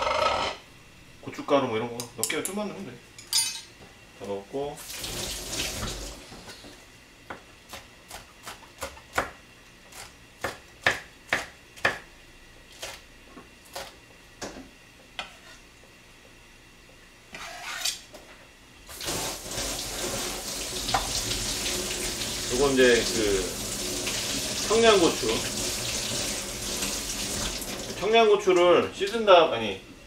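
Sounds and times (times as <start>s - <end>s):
tap water running into sink: 4.8s - 6.2s, 18.9s - 28.0s
knife chopping on cutting board: 7.3s - 12.1s.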